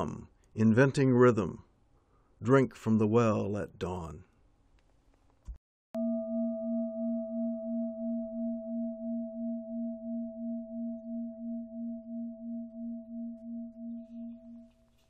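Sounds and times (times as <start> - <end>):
struck bell-like metal tone: 6.0 - 14.8.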